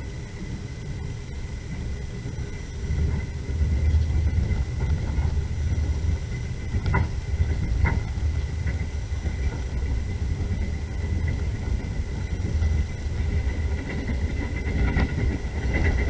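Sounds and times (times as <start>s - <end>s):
train rumbling: 0.0s - 16.0s.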